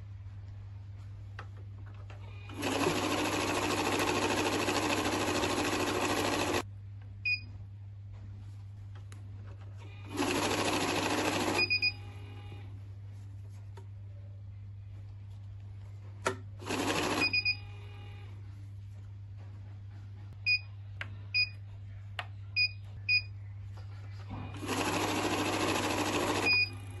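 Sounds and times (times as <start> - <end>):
money counter whirring: 2.5 - 6.6, 10.1 - 11.7, 16.6 - 17.5, 24.6 - 27.0
machine beeps: 10.3 - 12.2, 16.8 - 17.8, 26.3 - 26.8.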